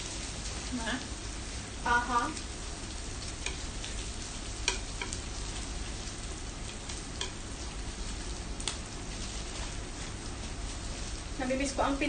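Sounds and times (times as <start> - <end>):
meat sizzling on a grill plate: 0.0 - 12.0
chopsticks and tongs clicking: 4.6 - 5.2, 6.9 - 7.4.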